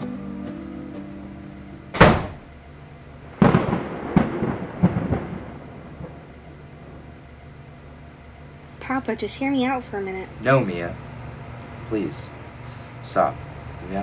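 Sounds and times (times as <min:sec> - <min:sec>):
sharp thunder crack: 0:02.0 - 0:02.5, 0:03.2 - 0:07.4
rolling thunder rumble: 0:03.2 - 0:10.2.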